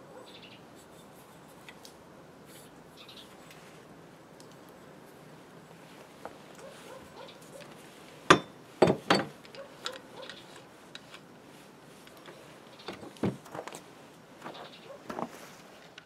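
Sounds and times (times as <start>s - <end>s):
tools knocking on workbench: 8.3s - 9.3s.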